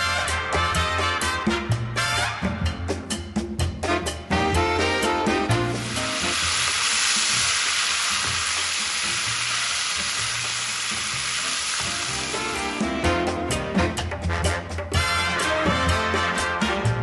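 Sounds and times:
background music: 0:00.0 - 0:17.0
steaks sizzling in a pan: 0:05.7 - 0:13.0.

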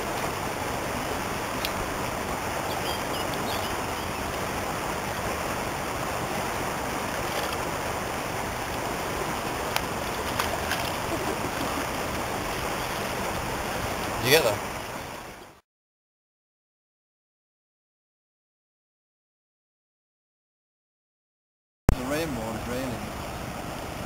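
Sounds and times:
river water rushing: 0:00.0 - 0:15.6, 0:22.0 - 0:24.0.

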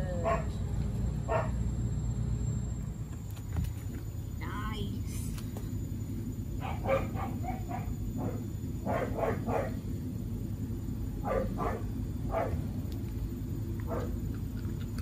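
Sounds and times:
dog yipping and whining: 0:06.6 - 0:09.7.

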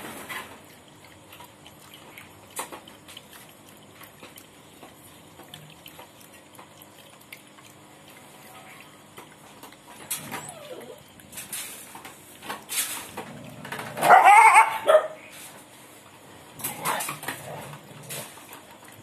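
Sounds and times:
dog lapping from steel pot: 0:00.1 - 0:15.2, 0:16.6 - 0:19.0
dog whining cries: 0:10.2 - 0:11.1, 0:14.0 - 0:15.2.

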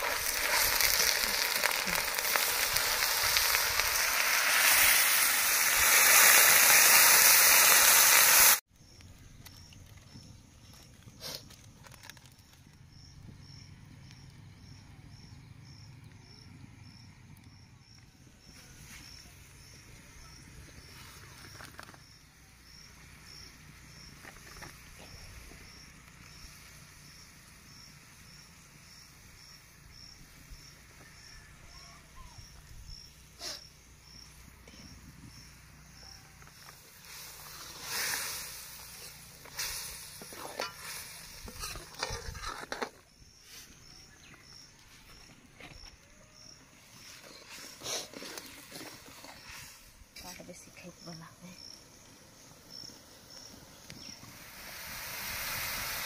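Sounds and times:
insect chirping: 0:00.0 - 0:56.0
metal ladle scraping a pot: 0:40.3 - 0:43.0.

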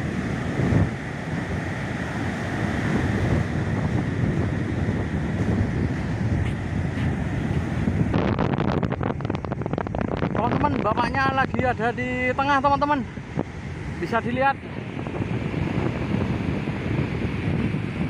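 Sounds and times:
heavy surf breaking: 0:00.0 - 0:18.0
wind buffeting microphone: 0:00.0 - 0:18.0.

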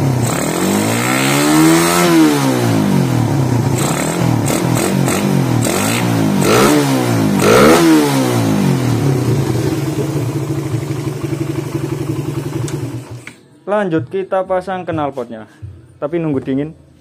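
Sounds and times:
motorcycle engine revving: 0:00.0 - 0:13.4
motorcycle engine idling: 0:08.4 - 0:13.3.

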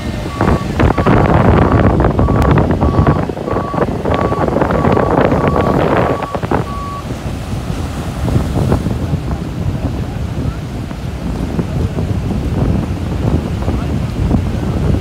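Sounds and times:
surf: 0:00.0 - 0:15.0
wind buffeting microphone: 0:00.0 - 0:15.0
reversing alarm beeping: 0:00.2 - 0:01.3, 0:02.2 - 0:07.1.

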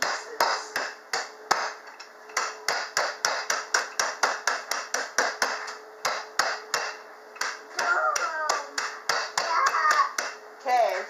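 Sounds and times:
rolling pin knocking on countertop: 0:02.4 - 0:10.4.

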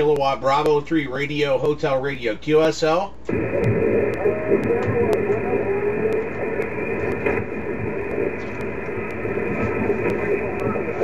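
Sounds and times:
radio band noise hiss: 0:02.6 - 0:11.0
weak radio signal: 0:02.9 - 0:11.0.

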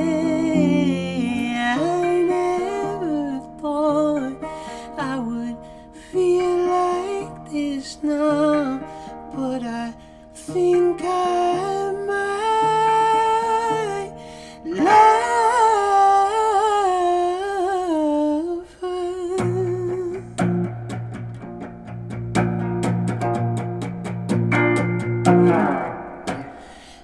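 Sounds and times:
man humming wordless melody: 0:00.0 - 0:20.5
guitar chords and strumming: 0:00.0 - 0:27.0.

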